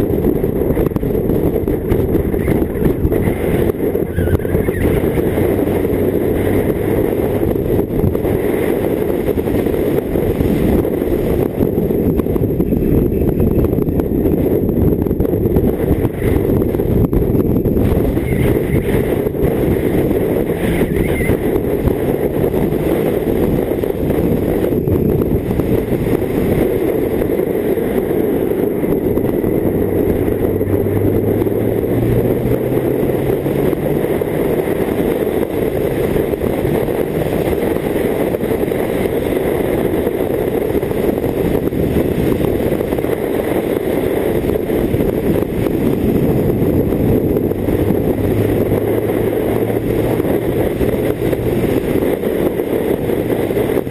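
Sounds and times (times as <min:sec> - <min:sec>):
motorcycle engine running: 0:00.0 - 0:53.9
wind rushing over microphone: 0:00.0 - 0:53.9.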